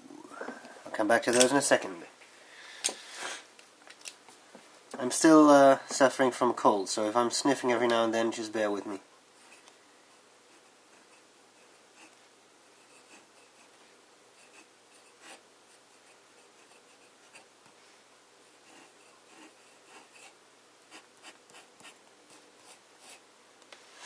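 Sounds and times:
pen nib scratching paper: 10.5s - 12.2s, 12.8s - 13.8s, 14.4s - 17.5s, 18.6s - 23.2s.

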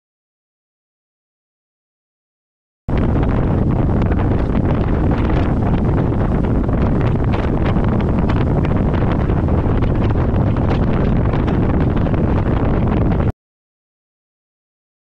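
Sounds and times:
boat motor: 2.9s - 13.3s
rush of boat wake: 2.9s - 13.3s
wind buffeting microphone: 2.9s - 13.3s.

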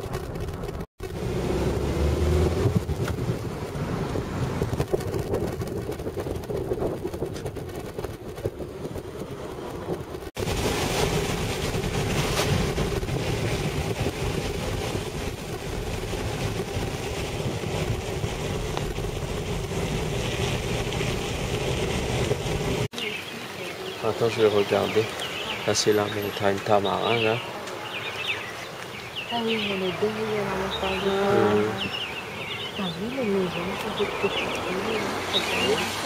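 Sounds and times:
car engine hum: 0.0s - 10.3s, 11.2s - 22.9s
wind noise: 0.0s - 23.4s
tyres hissing on wet road: 1.0s - 4.6s, 10.4s - 36.0s.

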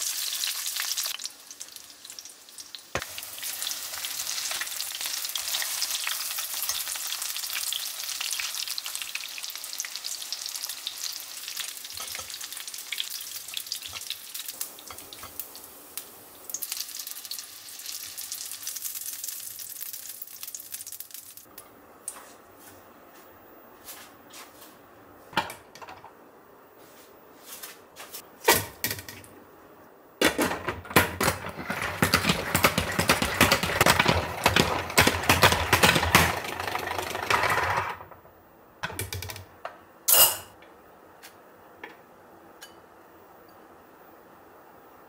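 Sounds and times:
salad spinner clattering whir: 30.5s - 38.2s.

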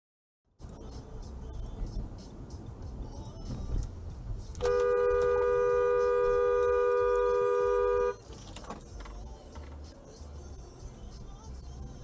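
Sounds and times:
low road rumble: 0.5s - 12.0s
two-tone car horn blast: 4.6s - 8.2s.

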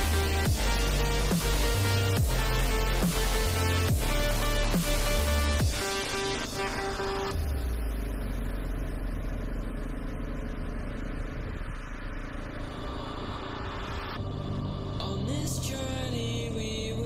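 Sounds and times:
wind and road noise: 7.3s - 16.2s.

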